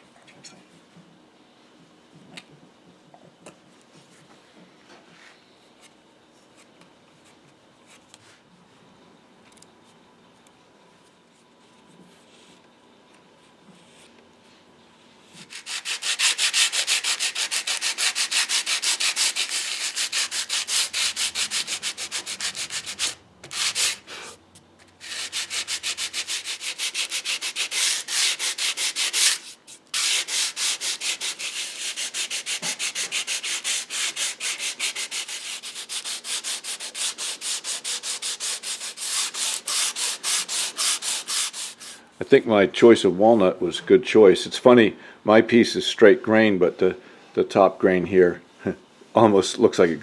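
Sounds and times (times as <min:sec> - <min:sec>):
sandpaper rubbing wood: 0:15.4 - 0:24.3, 0:25.0 - 0:42.0.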